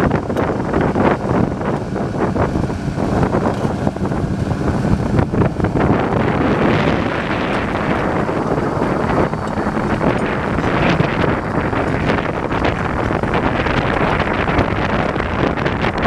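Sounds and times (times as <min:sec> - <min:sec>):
diesel engine running: 0:00.0 - 0:16.0
wind on microphone: 0:00.0 - 0:16.0
rocks and soil grinding: 0:00.3 - 0:15.2
steel tracks clattering: 0:01.7 - 0:15.1.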